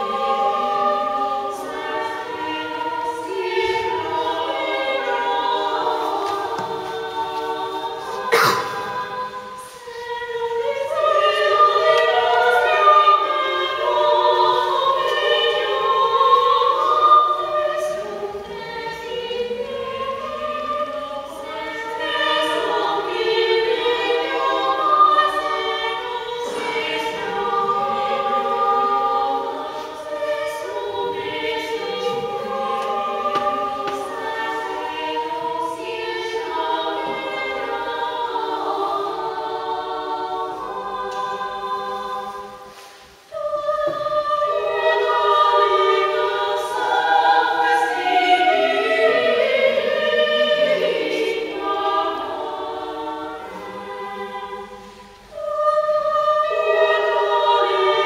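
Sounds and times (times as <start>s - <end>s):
women's choir singing a cappella: 0.0s - 58.0s.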